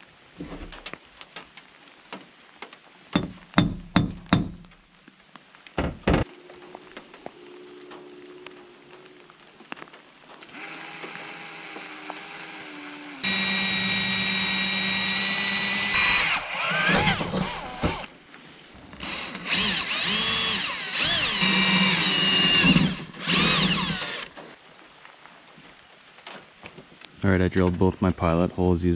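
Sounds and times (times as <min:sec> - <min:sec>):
cordless drill drilling metal: 0:10.4 - 0:18.1, 0:19.0 - 0:24.4.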